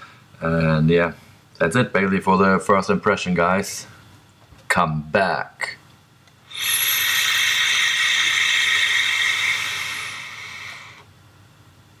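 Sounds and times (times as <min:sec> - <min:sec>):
airy hiss of inhaled air: 0:06.5 - 0:11.1.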